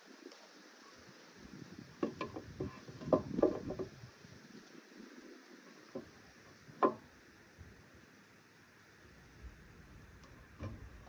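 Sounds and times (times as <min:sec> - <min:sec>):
wooden plank knocking on boards: 0:02.0 - 0:03.9, 0:06.8 - 0:07.0.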